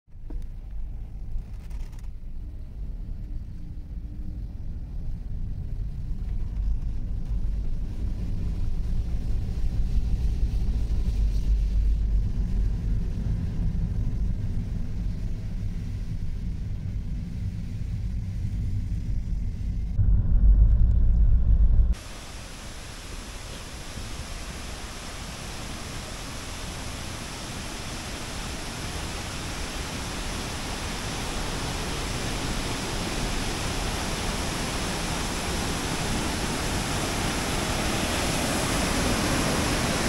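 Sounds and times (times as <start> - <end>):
car engine and road noise: 17.6 - 23.2.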